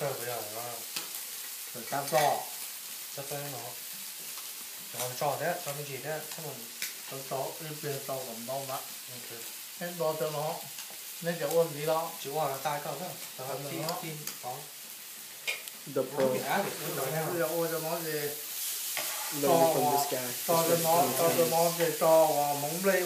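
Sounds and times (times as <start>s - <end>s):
people talking: 0.0s - 0.9s, 1.8s - 2.5s, 3.2s - 3.8s, 5.0s - 14.7s, 15.9s - 18.4s, 19.3s - 23.0s
background hiss: 0.0s - 23.0s.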